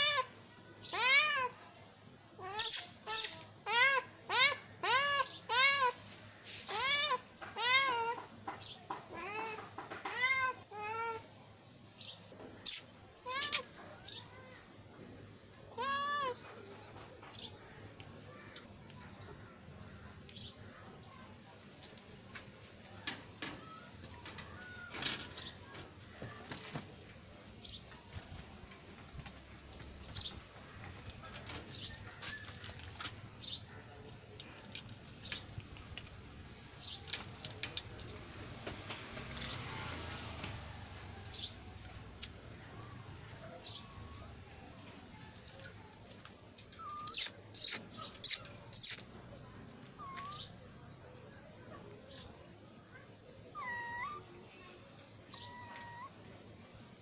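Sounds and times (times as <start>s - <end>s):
cat meowing: 0.0s - 1.6s, 2.4s - 6.0s, 6.7s - 8.3s, 9.1s - 11.3s, 13.2s - 13.8s, 15.7s - 16.4s, 49.9s - 50.5s, 53.5s - 54.3s, 55.3s - 56.2s
small birds chirping: 0.0s - 1.6s, 2.4s - 15.0s, 15.7s - 22.4s, 23.4s - 38.3s, 41.2s - 56.8s.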